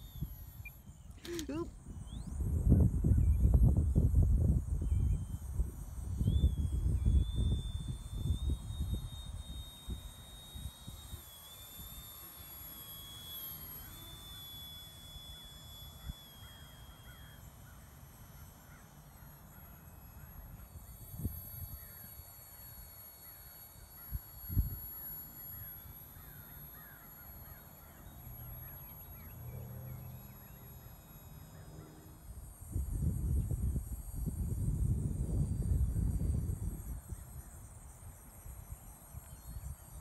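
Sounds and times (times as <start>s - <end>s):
model airplane motor whine: 0.0s - 40.0s
wind rumble on microphone: 1.7s - 11.2s, 32.4s - 40.0s.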